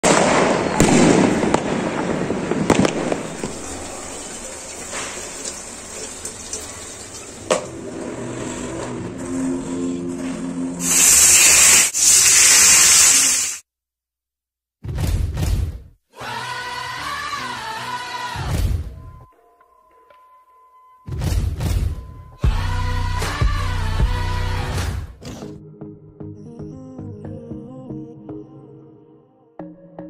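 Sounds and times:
fireworks banging and crackling: 0.0s - 6.0s
fish sizzling in hot oil: 3.4s - 7.4s, 10.8s - 13.6s.

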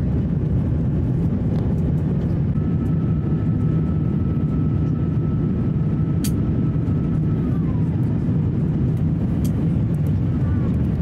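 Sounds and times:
airplane cabin engine rumble: 0.0s - 11.0s
thin steady whine: 2.5s - 10.6s.

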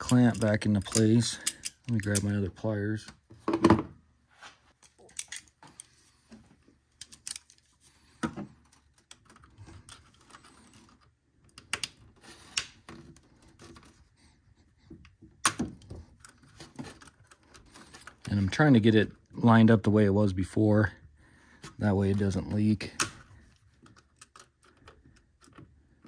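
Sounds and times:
faint handling noise: 4.3s - 19.9s.

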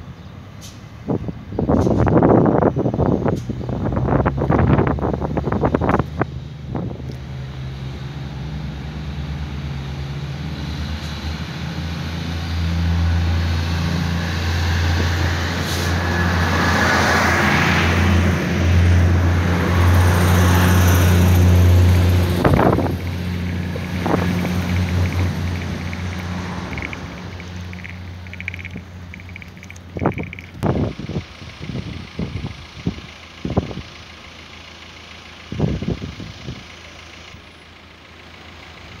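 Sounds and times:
diesel railcar engine drone: 0.0s - 39.0s
train wheel noise: 10.5s - 33.8s.

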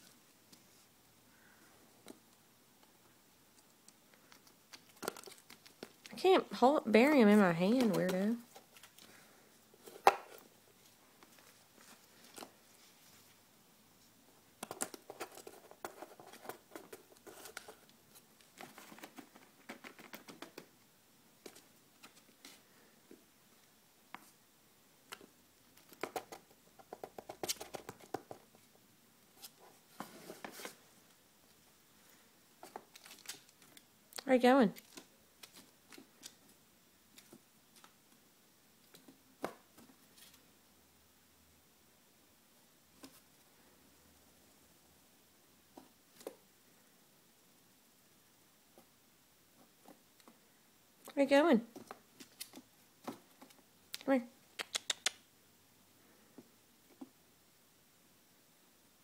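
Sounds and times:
squirrel scratching cardboard: 7.3s - 9.0s, 14.6s - 20.7s, 25.8s - 28.6s.

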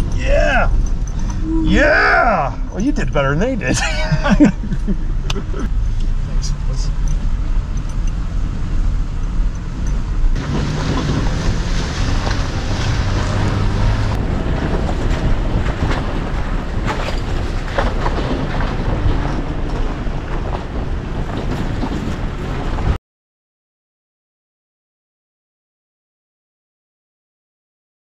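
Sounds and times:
truck rumbling on gravel: 0.0s - 23.0s
wind buffeting microphone: 7.2s - 23.0s
truck jolting knocks: 10.4s - 23.0s.

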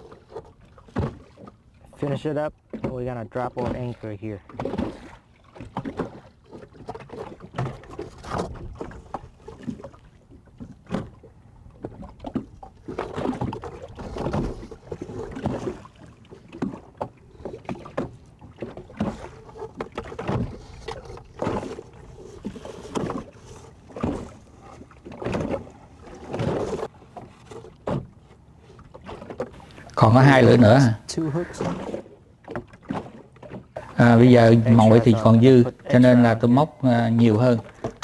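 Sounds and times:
light breeze: 0.0s - 38.0s
waves slapping against boat hull: 0.0s - 38.0s.

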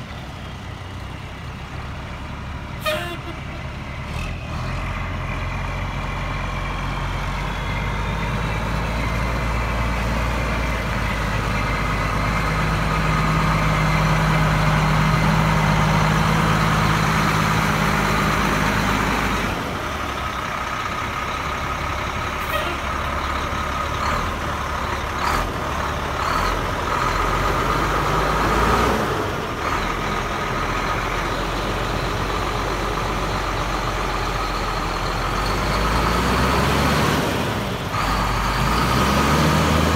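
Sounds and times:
diesel truck engine: 0.0s - 39.9s.

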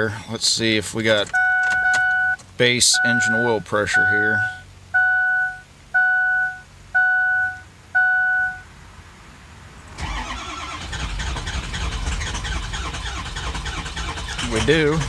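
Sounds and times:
diesel engine starter cranking: 1.1s - 2.6s, 10.0s - 15.0s
dashboard warning chime: 1.3s - 8.7s.

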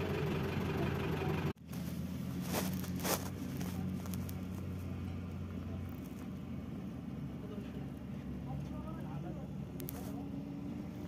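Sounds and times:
engine idling: 0.0s - 11.0s
rustling scrapes: 1.6s - 5.2s.

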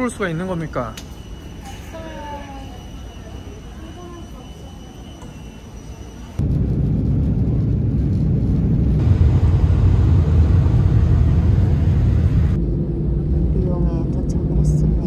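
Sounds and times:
jet cabin engine rumble: 6.4s - 15.0s.

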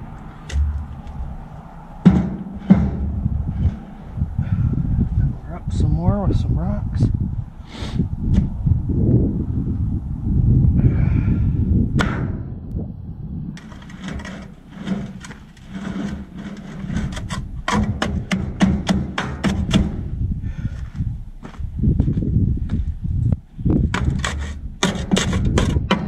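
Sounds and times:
low rumble: 0.0s - 15.6s, 19.9s - 24.0s
shovel scraping dirt and gravel: 13.6s - 18.4s, 24.0s - 26.0s.

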